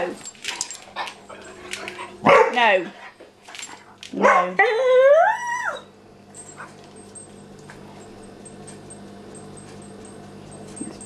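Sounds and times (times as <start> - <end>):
puppy whining: 4.5 - 6.8.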